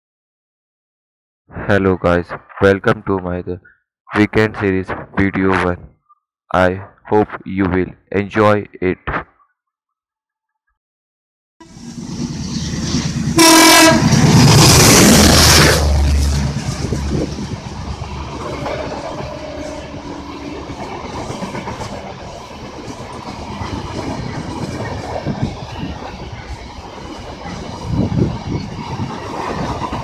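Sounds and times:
locomotive engine drone: 11.6s - 30.0s
train horn blast: 13.4s - 14.2s, 19.0s - 20.4s
train wheels clickety-clack: 20.5s - 30.0s.

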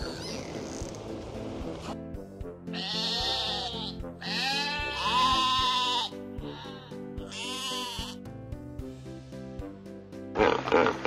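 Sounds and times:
sheep bleating: 2.7s - 8.2s.

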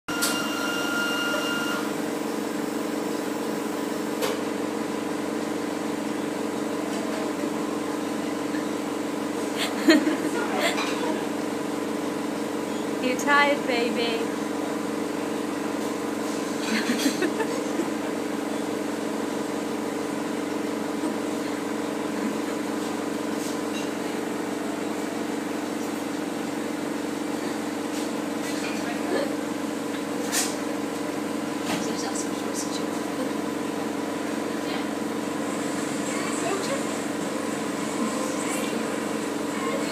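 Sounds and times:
machine hum: 0.1s - 39.9s.

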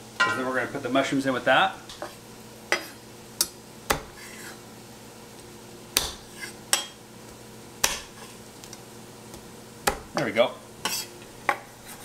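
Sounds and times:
knife chopping on wooden board: 3.9s - 4.5s, 6.0s - 6.9s, 7.8s - 8.3s, 9.3s - 10.2s.

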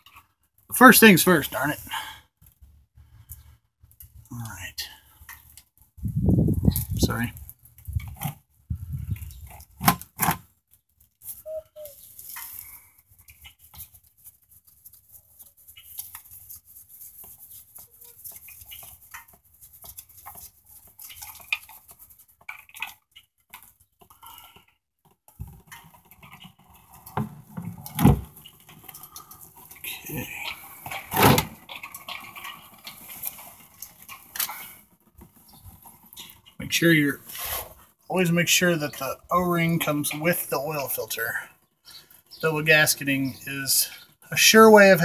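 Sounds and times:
oil filter scraping and clicking: 2.4s - 5.9s, 6.6s - 39.1s.

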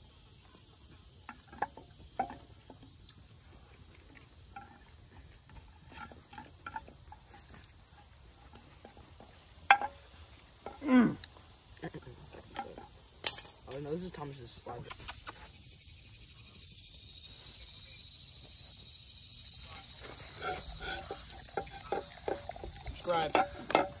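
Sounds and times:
crickets chirring: 0.0s - 24.0s
sharp clack: 13.2s - 13.9s.

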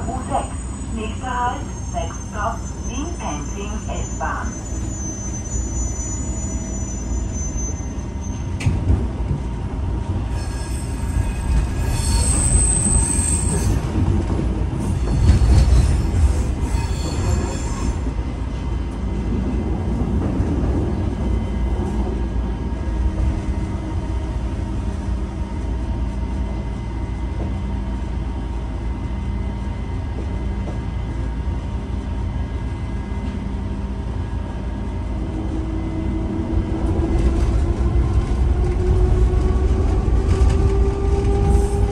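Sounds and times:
train wheels rumbling on track: 0.0s - 41.9s
high-pitched wheel squeal: 1.6s - 8.5s, 10.3s - 13.9s, 14.9s - 18.0s.

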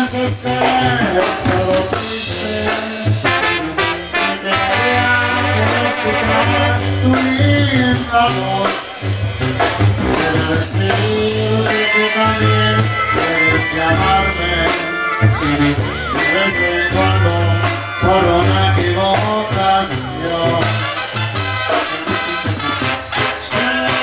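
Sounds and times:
drums: 0.0s - 24.0s
low bass line: 0.0s - 24.0s
clarinets and brass melody: 3.2s - 7.3s, 11.2s - 24.0s.

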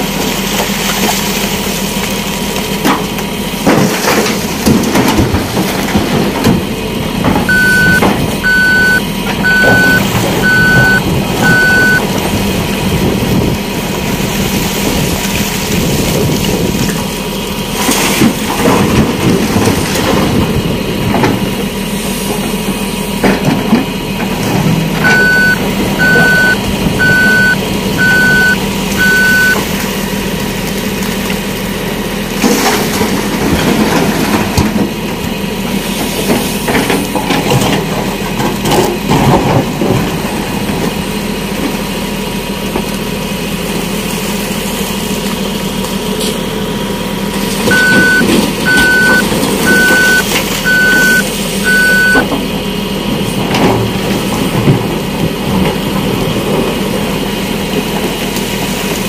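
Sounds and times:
diesel engine running: 0.0s - 59.0s
reversing alarm beeping: 7.5s - 12.1s, 25.0s - 29.6s, 47.7s - 52.3s.

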